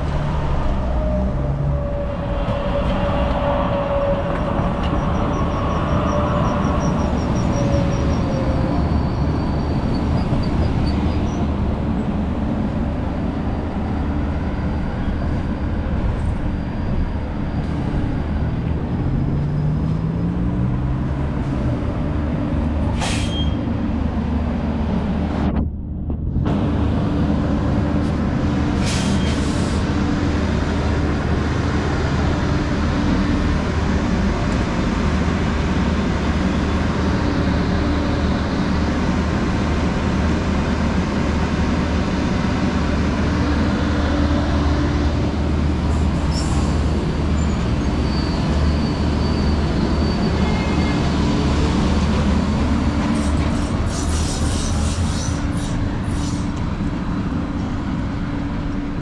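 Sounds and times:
short air hisses: 0:23.0 - 0:23.4, 0:28.8 - 0:29.8, 0:53.2 - 0:56.5
steady low rumble: 0:23.8 - 0:28.7.

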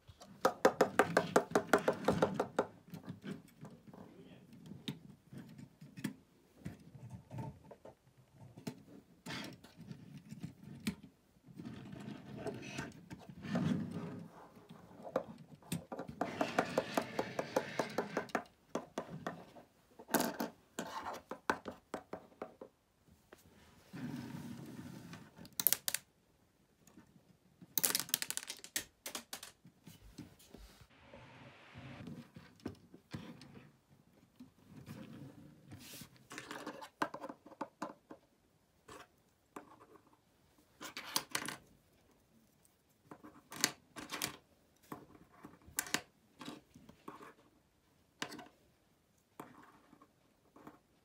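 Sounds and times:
plastic bricks clicking: 0:25.5 - 0:26.1, 0:27.8 - 0:29.6.

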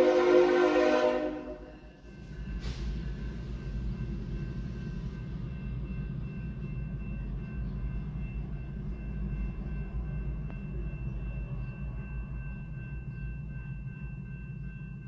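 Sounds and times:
locomotive engine rumble: 0:00.0 - 0:15.0.

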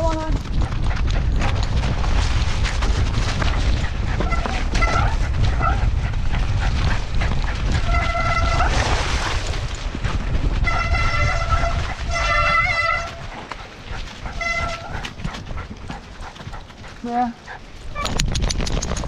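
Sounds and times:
wind rushing and buffeting: 0:00.0 - 0:19.0
high squeals: 0:10.7 - 0:13.3.

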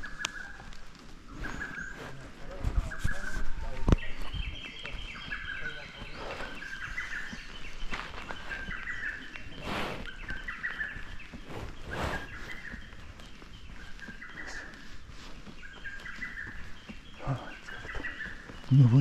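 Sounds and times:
fast-pulsing bird chorus: 0:01.3 - 0:19.0
birds singing short high phrases: 0:15.7 - 0:19.0.

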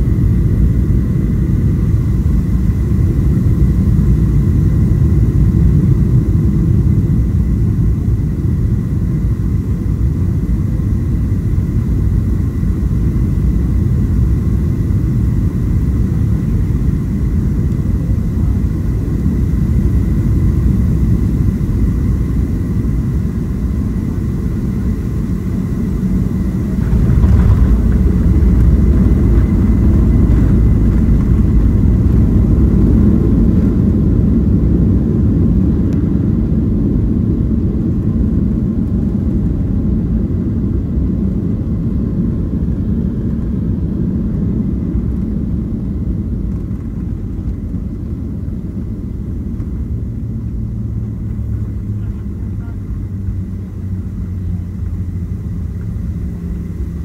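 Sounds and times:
faint engine whine: 0:00.0 - 0:57.0
jet engine low rumble: 0:00.0 - 0:57.0.

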